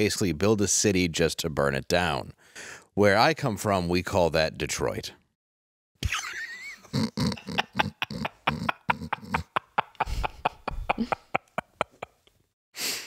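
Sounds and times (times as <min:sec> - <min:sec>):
pulsing laughter: 0:06.1 - 0:12.1.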